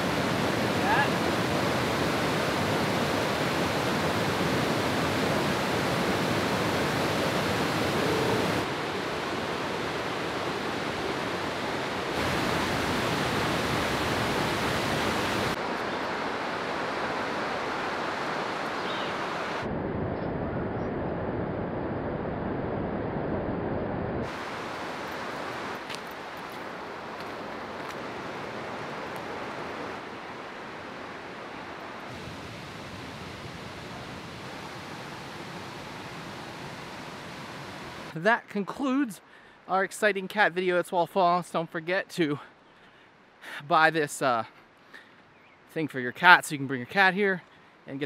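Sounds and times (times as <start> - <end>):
rushing water of rapids: 0.0 - 19.7, 24.2 - 39.1.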